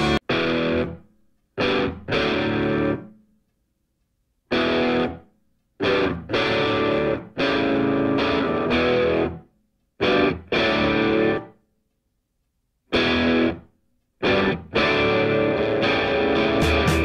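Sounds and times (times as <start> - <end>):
distorted electric guitar chords: 0.0 - 3.2, 4.5 - 5.2, 5.8 - 9.4, 10.0 - 11.6, 12.9 - 17.0.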